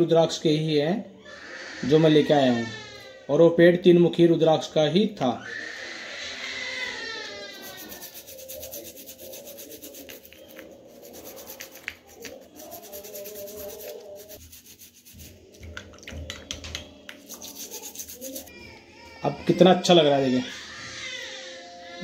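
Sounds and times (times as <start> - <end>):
toothbrush scrubbing a bead: 6.8 - 18.5.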